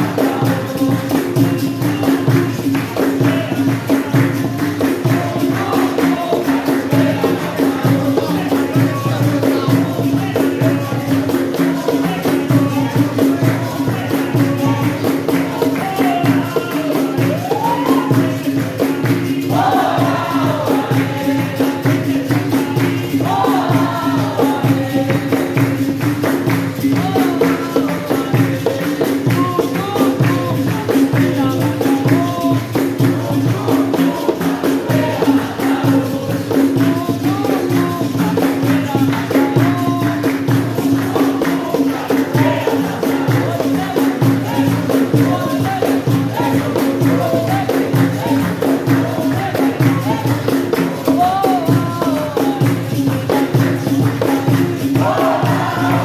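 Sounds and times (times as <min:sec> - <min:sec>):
pandeiro rhythm: 0:00.0 - 0:56.0
voices singing: 0:00.0 - 0:56.0.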